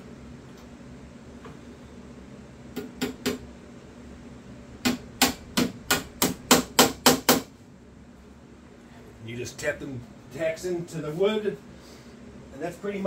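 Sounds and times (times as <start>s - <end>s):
hammer tapping tacks into wood: 4.8s - 7.5s.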